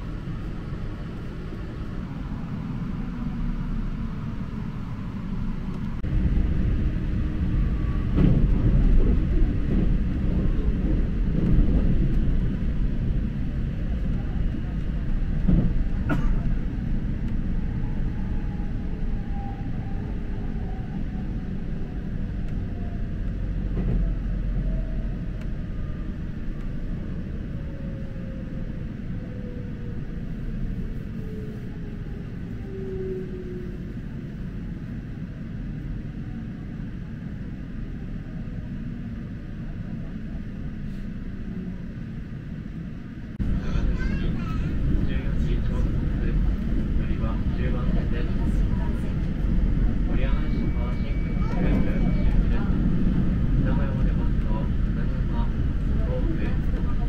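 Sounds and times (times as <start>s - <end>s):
train wheels rumbling: 0.0s - 35.9s, 37.4s - 57.0s
train wheels on rails: 3.3s - 18.7s.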